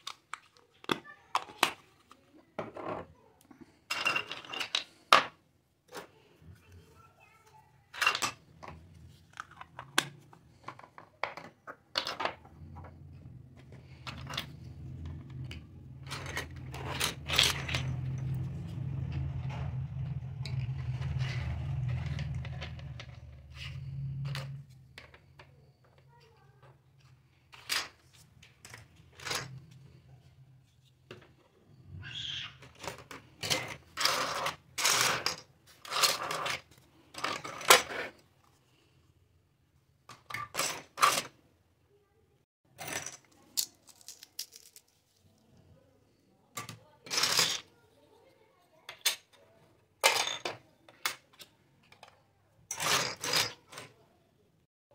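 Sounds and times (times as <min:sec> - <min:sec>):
low hum: 0:12.8 - 0:24.7
plastic toy pieces clicking: 0:42.8 - 0:45.0.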